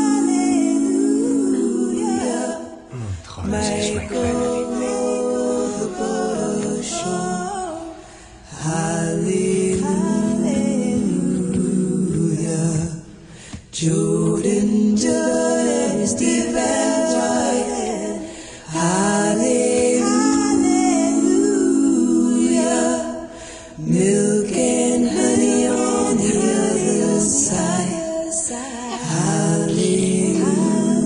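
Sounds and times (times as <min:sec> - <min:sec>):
person singing unaccompanied: 0:00.0 - 0:08.0, 0:08.6 - 0:13.1.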